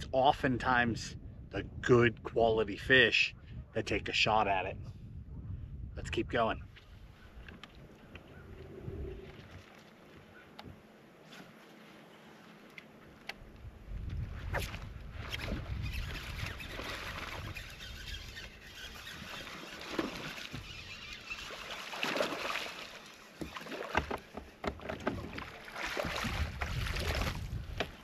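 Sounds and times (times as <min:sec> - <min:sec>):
wind buffeting microphone: 0:00.0 - 0:09.6, 0:13.4 - 0:19.5, 0:26.0 - 0:28.0
fish splashing at water surface: 0:21.4 - 0:24.1.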